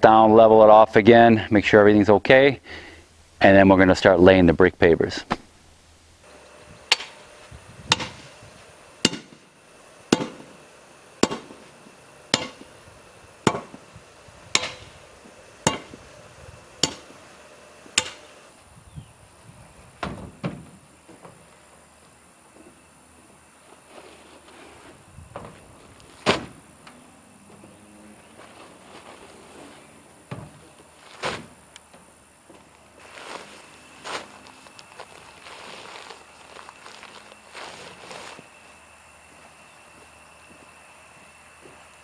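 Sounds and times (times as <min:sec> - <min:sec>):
hand tamper striking gravel: 0:06.8 - 0:08.4, 0:09.0 - 0:10.6, 0:11.2 - 0:12.8, 0:13.4 - 0:13.9, 0:14.5 - 0:16.0, 0:16.8 - 0:17.2, 0:17.9 - 0:18.4
shuffling and handling of a load: 0:19.4 - 0:26.9, 0:27.5 - 0:41.9.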